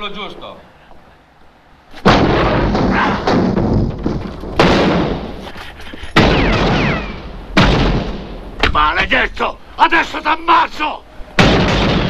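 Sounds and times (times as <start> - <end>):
loud gunshots: 2.0 - 3.9, 4.6 - 5.4, 6.2 - 8.5, 11.4 - 12.0.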